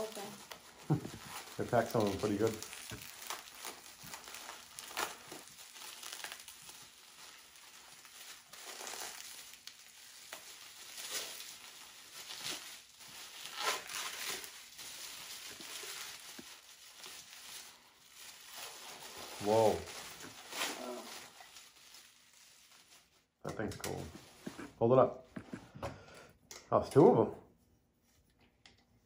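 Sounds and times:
bubble wrap crinkling: 0.0s - 25.7s.

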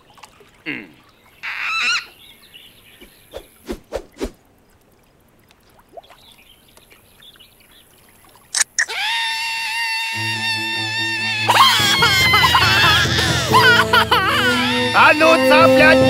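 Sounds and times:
faint splashing: 0.0s - 8.9s
high held wailing cry: 8.9s - 16.0s.

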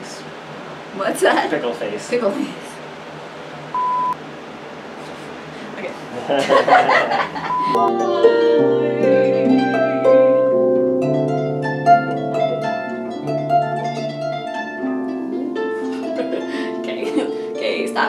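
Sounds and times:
harp melody: 7.5s - 18.0s.

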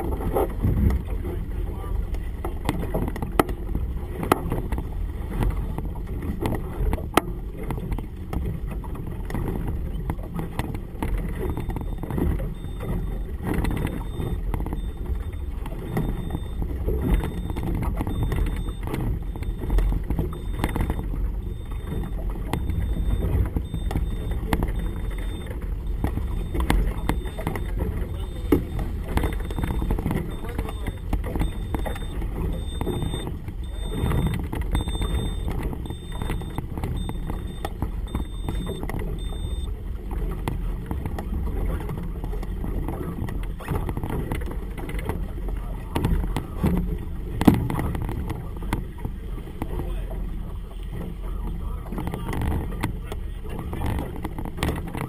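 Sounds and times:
water slapping boat hull: 0.0s - 55.0s
wind rumbling on microphone: 0.0s - 55.0s.

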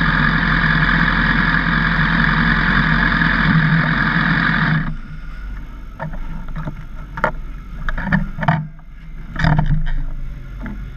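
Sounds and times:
motorcycle engine idling: 0.0s - 6.1s.

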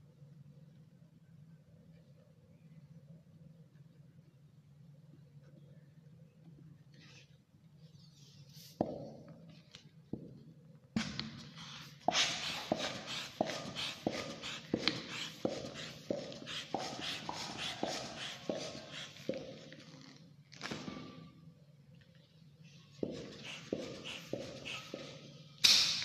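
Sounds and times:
hand pump strokes rushing air: 12.1s - 19.4s.

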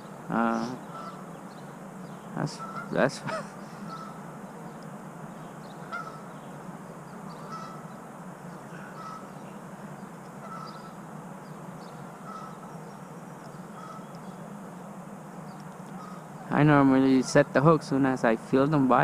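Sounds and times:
steady background noise: 0.0s - 19.0s
goose honking: 0.5s - 1.3s, 2.4s - 4.4s, 5.8s - 6.3s, 7.3s - 8.0s, 8.8s - 9.7s, 10.3s - 11.1s, 12.0s - 14.2s, 15.8s - 17.7s.

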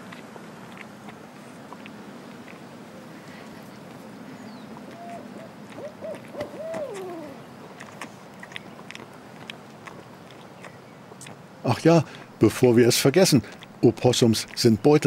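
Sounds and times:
owl hooting: 4.9s - 7.5s.

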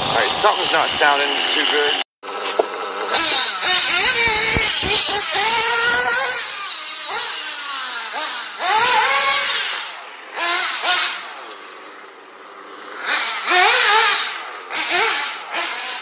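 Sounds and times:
toy car motor whining: 0.0s - 12.0s, 12.9s - 16.0s.

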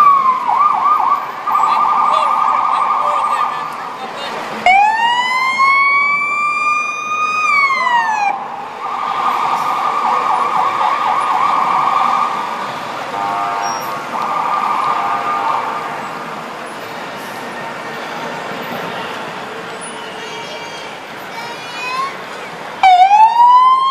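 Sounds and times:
electronic siren whoop and yelp: 22.8s - 23.9s.

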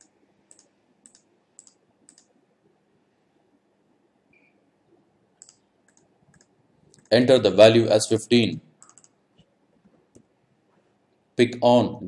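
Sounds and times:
computer mouse clicks: 0.0s - 2.3s, 5.4s - 7.2s, 8.8s - 10.3s.

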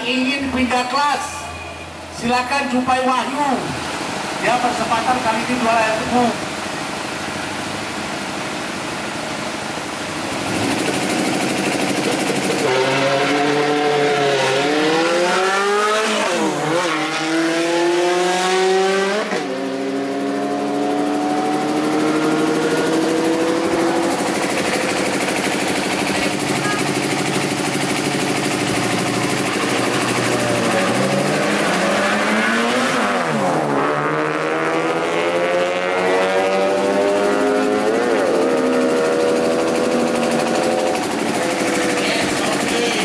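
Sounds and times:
race car accelerating: 10.2s - 43.0s.

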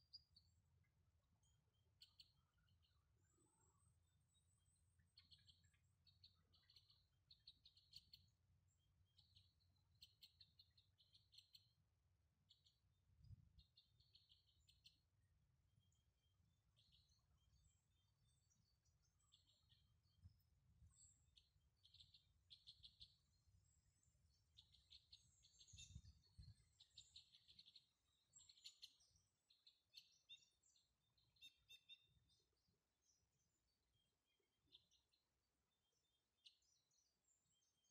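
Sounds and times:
birds chirping: 15.9s - 35.2s.

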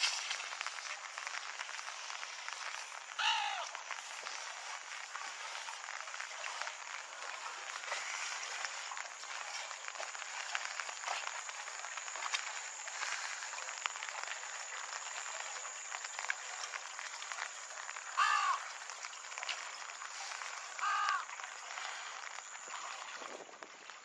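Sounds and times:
rain pattering: 0.0s - 24.0s
bird call: 3.2s - 3.8s, 18.2s - 18.8s, 20.8s - 21.3s.

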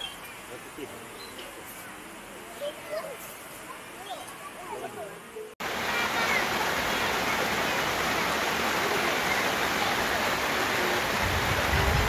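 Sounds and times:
river flowing over rocks: 5.0s - 12.0s.

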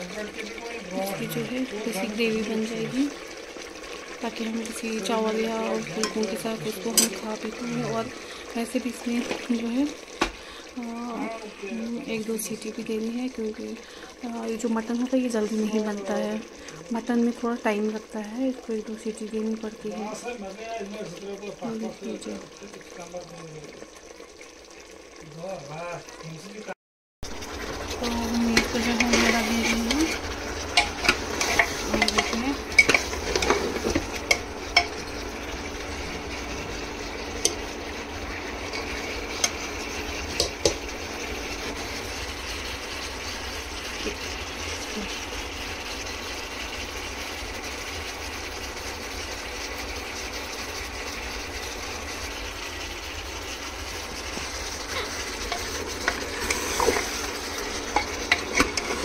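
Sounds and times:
meat sizzling in oil: 0.0s - 59.0s
spoon clinking against a pot: 6.9s - 7.2s, 30.8s - 33.6s.

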